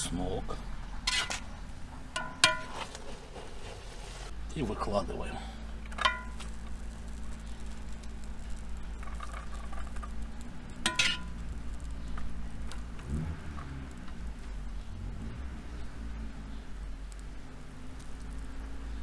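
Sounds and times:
low steady hum: 3.8s - 19.0s
rice pattering onto a dish: 5.8s - 14.6s.

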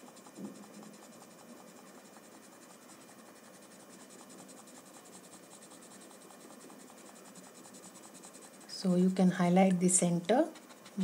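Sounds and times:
chalk pencil scratching on paper: 0.0s - 11.0s.

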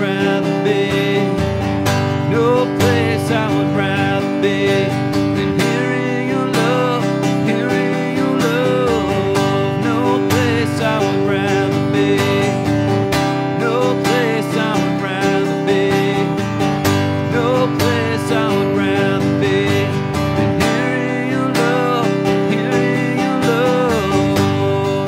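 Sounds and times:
acoustic guitar strumming: 0.0s - 25.0s
man singing: 0.0s - 25.0s.

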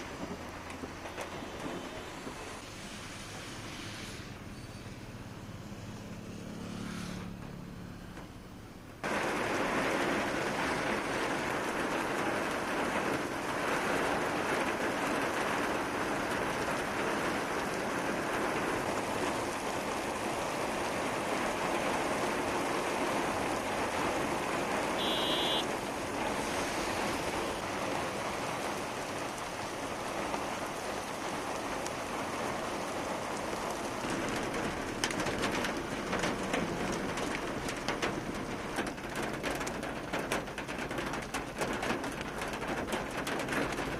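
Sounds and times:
heavy rain on road: 0.0s - 43.9s
hailstones ticking: 9.0s - 43.9s.

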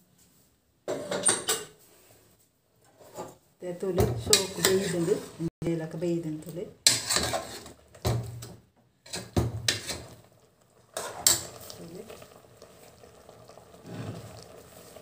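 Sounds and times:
ladle clanking and scraping pot: 4.0s - 5.5s, 6.8s - 11.7s, 13.8s - 14.5s.

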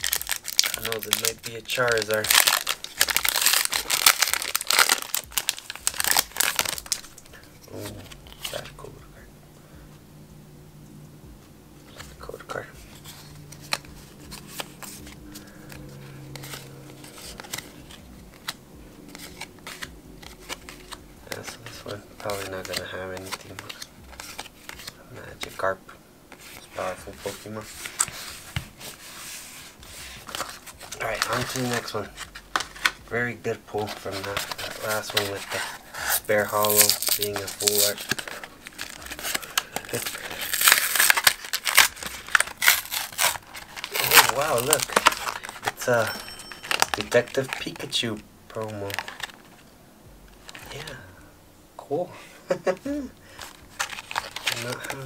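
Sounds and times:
blister package tearing and crinkling: 0.0s - 8.7s, 12.9s - 25.0s, 30.2s - 33.1s, 33.8s - 48.0s, 48.6s - 49.6s, 52.8s - 55.0s
trading cards being flipped: 0.0s - 8.8s, 11.8s - 25.6s, 26.3s - 33.1s, 33.8s - 48.0s, 48.6s - 49.7s, 53.4s - 55.0s
low steady hum: 0.0s - 55.0s.

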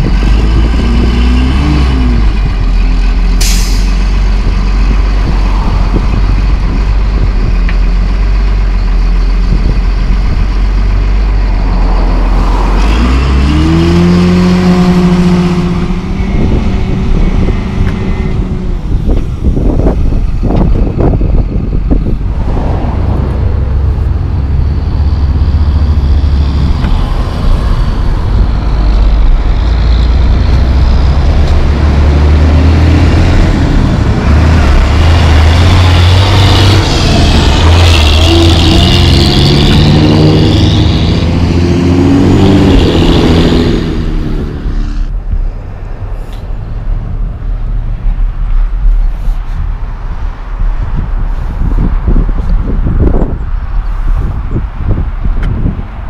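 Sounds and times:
engine revving: 0.0s - 7.2s, 10.8s - 18.8s, 21.2s - 47.7s
heavy diesel engines running: 0.0s - 56.0s.

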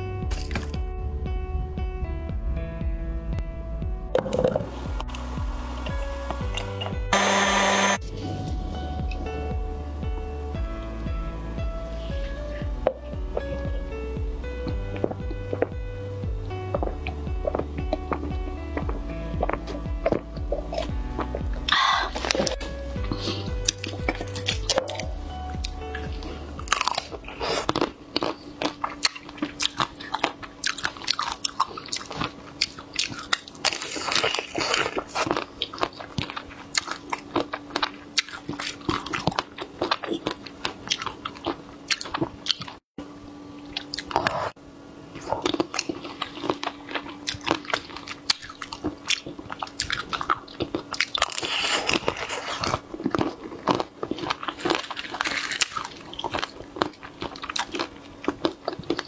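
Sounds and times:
crunching chocolate coating: 16.7s - 42.8s, 45.1s - 59.0s
chewing: 16.8s - 42.8s, 43.7s - 59.0s.

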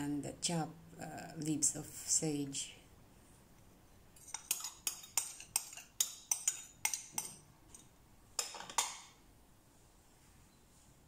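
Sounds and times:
ceramic bowl clinking: 4.2s - 9.1s.

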